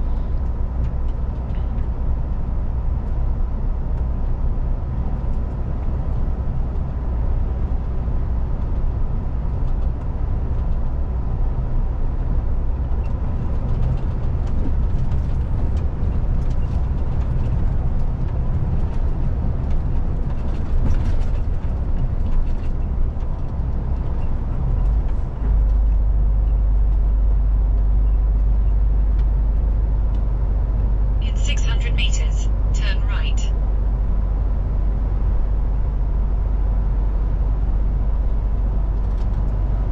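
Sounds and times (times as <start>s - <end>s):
road noise: 0.0s - 39.9s
light rattles and ticks: 12.8s - 30.9s
truck diesel engine drone: 23.7s - 34.0s.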